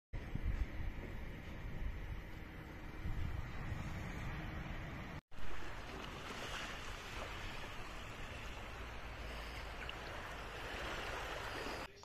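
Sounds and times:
water lapping on stony shore: 5.3s - 11.9s.

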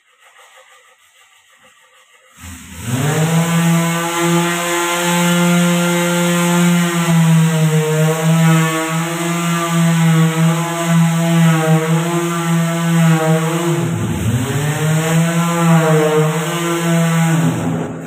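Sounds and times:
electric sander buzzing: 2.4s - 18.0s.

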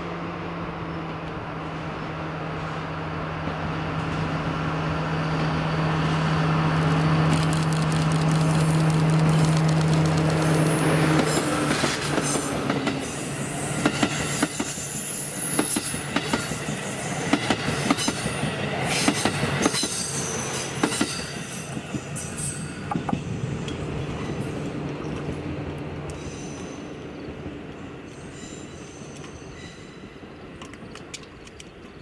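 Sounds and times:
diesel locomotive engine running: 0.0s - 30.9s
train wheels clacking over rail joints: 6.8s - 13.2s, 17.3s - 25.3s
high wheel squeals: 12.2s - 22.9s, 26.1s - 27.3s, 28.0s - 30.3s.

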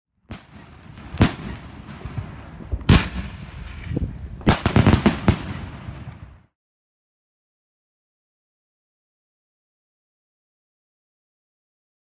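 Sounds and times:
firework bangs: 0.3s - 6.5s.

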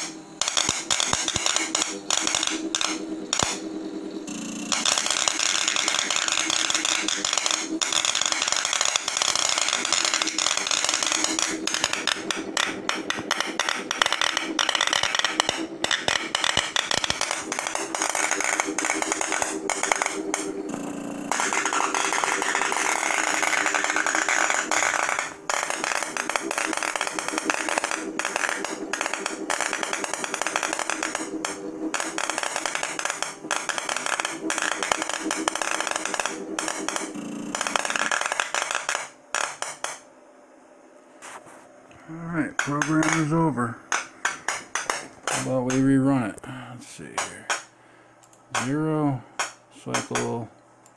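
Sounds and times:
electrical discharge sparking crackle: 0.0s - 3.6s, 4.7s - 20.5s, 21.3s - 40.0s.

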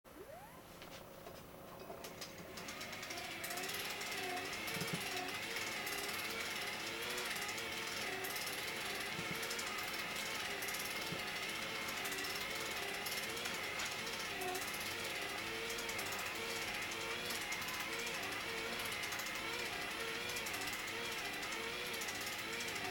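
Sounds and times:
motor whine: 0.1s - 1.0s, 2.3s - 22.9s
fast mechanical rattle: 1.6s - 22.9s.

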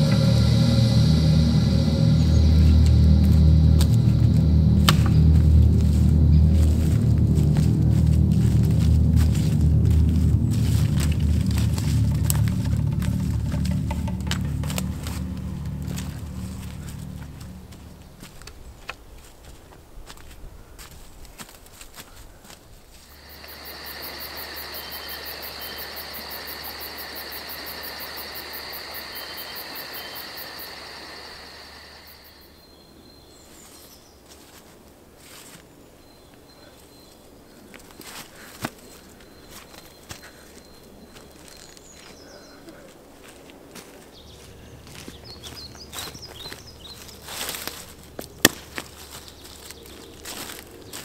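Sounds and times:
crickets chirping: 0.0s - 18.5s, 23.0s - 33.4s, 44.1s - 51.0s
sharp crack: 0.0s - 18.6s
footsteps crunching dry leaves: 0.0s - 25.9s, 33.4s - 36.2s, 36.8s - 51.0s
bird chirps: 44.1s - 47.3s.

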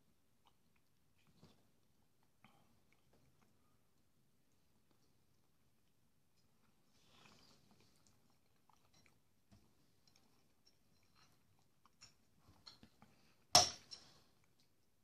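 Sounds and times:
soft chewing: 0.0s - 15.0s.

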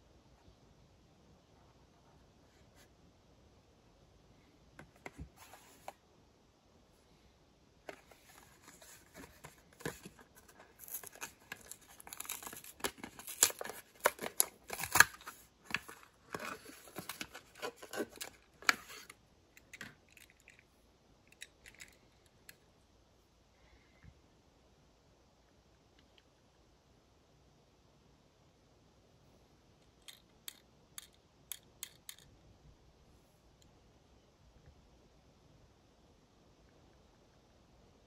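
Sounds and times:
plastic packaging tearing open: 8.8s - 19.1s
toy car clicks: 30.1s - 32.2s.

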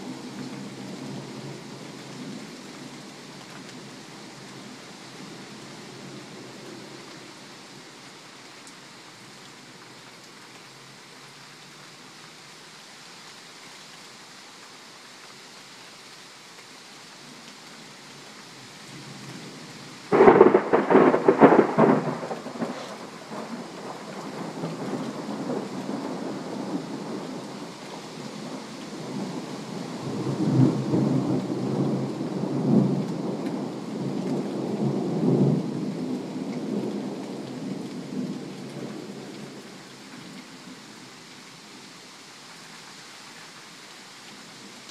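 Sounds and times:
steady rain hiss: 0.0s - 44.9s
loud thunderclap with crackling: 20.1s - 27.3s
rumbling thunder: 20.1s - 27.3s.

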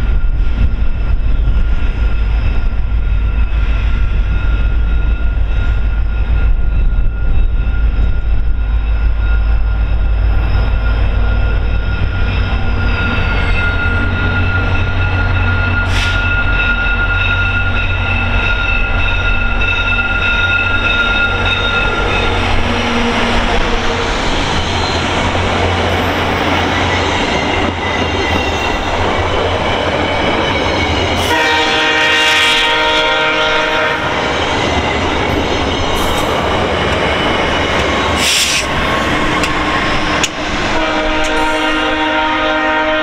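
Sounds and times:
diesel locomotive passing: 0.0s - 43.0s
train wheels on rails: 0.0s - 43.0s
multi-tone train horn: 20.2s - 24.1s, 31.2s - 34.4s, 40.6s - 43.0s.

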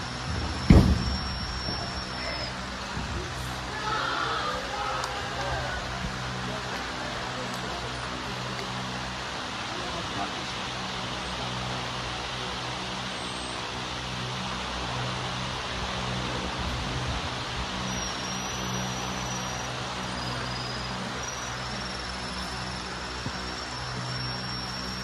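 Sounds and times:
faint thin high whine: 0.0s - 3.8s, 17.8s - 25.0s
outdoor background hiss: 0.0s - 25.0s.

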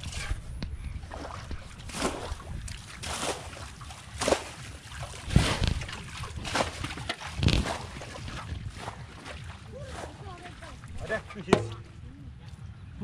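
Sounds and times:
water splashing and sloshing: 0.0s - 12.9s.

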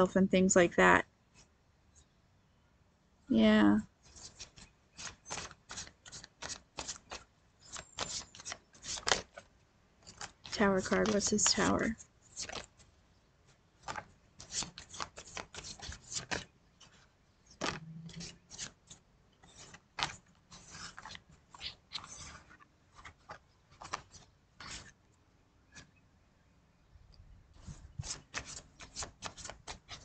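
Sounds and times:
cards being shuffled: 4.0s - 12.9s, 13.8s - 25.0s, 27.6s - 30.0s.

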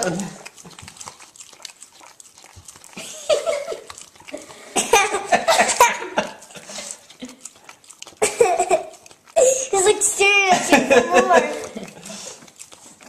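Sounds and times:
people laughing: 5.0s - 6.9s, 10.5s - 12.3s.

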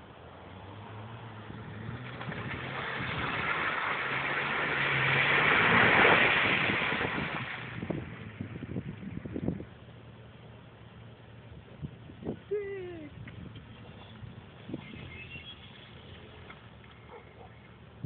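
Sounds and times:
car engine driving through mud: 0.0s - 11.3s.

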